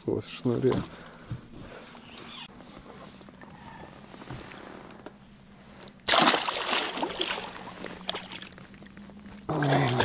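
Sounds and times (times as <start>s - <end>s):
water splashing and sloshing: 5.8s - 10.0s.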